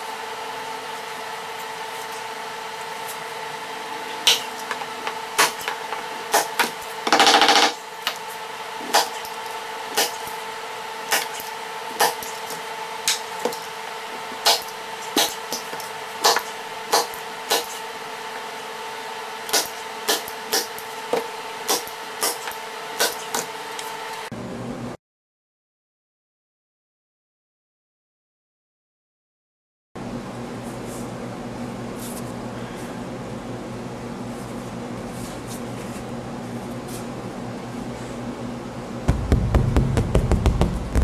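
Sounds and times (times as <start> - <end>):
steady hum: 0.0 - 18.4, 35.0 - 41.0.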